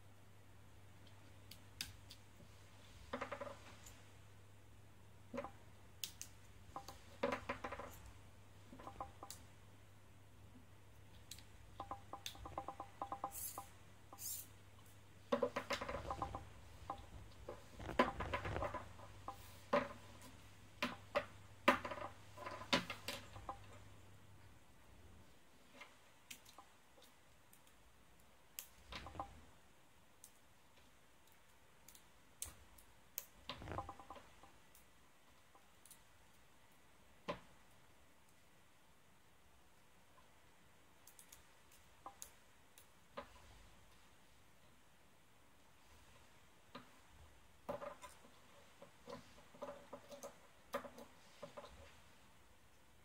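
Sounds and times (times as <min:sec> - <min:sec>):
plastic parts clicking and rattling: 0:47.6 - 0:52.0.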